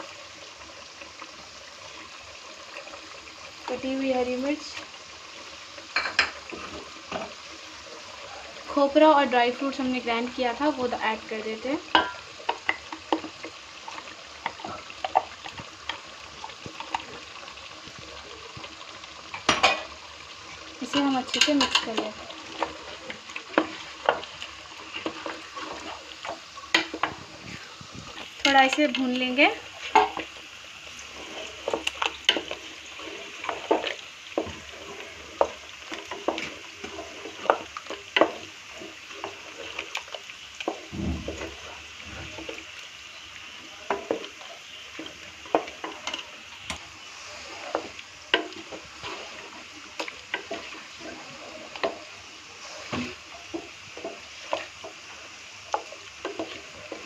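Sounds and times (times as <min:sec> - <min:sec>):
meat sizzling in a pot: 0:00.0 - 0:57.0
spatula scraping metal pot: 0:31.0 - 0:40.8.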